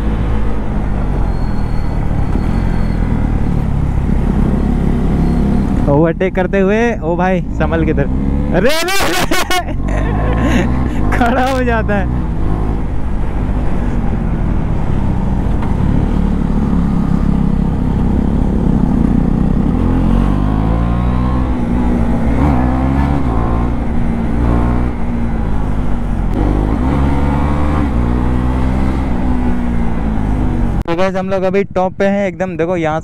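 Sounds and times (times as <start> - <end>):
motorcycle engine running: 14.1 - 26.4.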